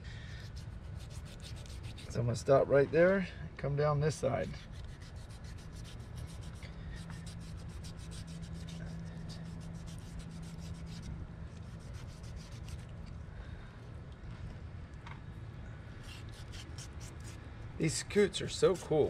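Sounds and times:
low steady hum: 0.0s - 19.0s
knife scraping hide: 0.4s - 2.2s, 4.3s - 13.2s, 16.0s - 17.4s.

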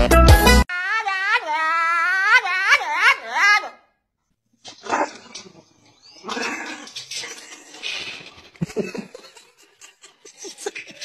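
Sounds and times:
small dog vocalizing: 4.7s - 8.4s.

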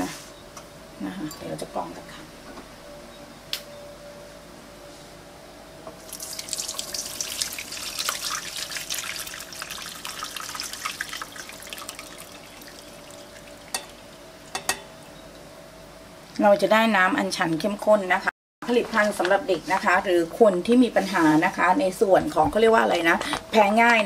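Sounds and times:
liquid pouring into metal bowl: 6.1s - 14.1s.

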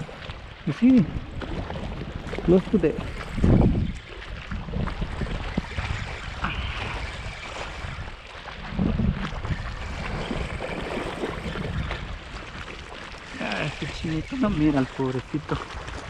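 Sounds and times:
waves lapping against concrete: 0.0s - 16.0s
wind buffeting microphone: 0.0s - 16.0s.

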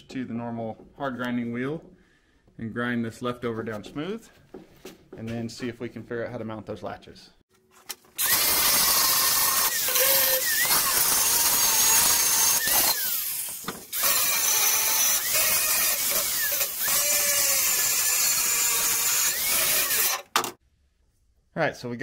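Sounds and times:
angle grinder grinding metal: 8.2s - 20.6s.

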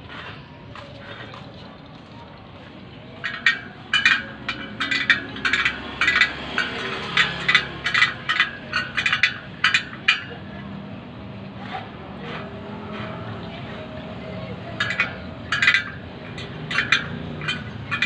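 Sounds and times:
spoke wrench clinking on spokes: 3.0s - 10.7s, 14.5s - 18.0s.

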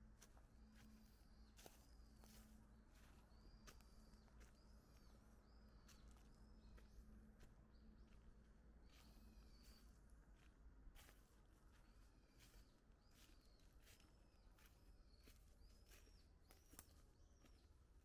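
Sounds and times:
bird chirping: 11.8s - 18.0s.

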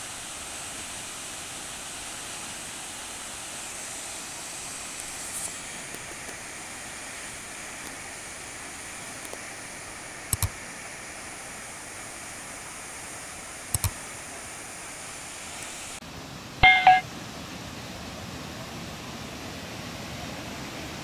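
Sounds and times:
mouse clicks: 10.3s - 10.5s, 13.7s - 14.0s.

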